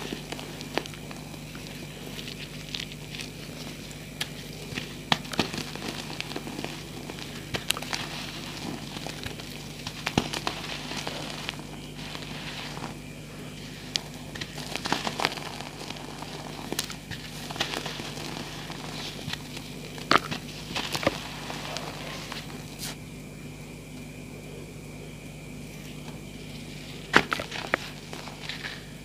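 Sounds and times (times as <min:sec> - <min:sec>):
chalk crunching in hands: 0:00.0 - 0:23.0.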